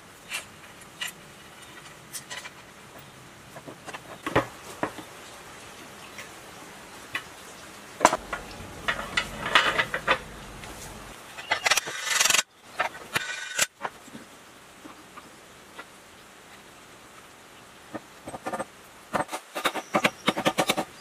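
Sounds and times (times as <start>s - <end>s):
metal parts clinking and knocking: 8.1s - 10.4s.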